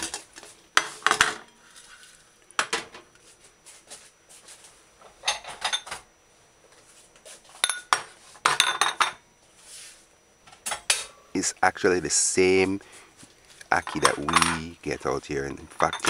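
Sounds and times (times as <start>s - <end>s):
ceramic bowls clinking: 13.8s - 14.7s, 15.7s - 16.0s.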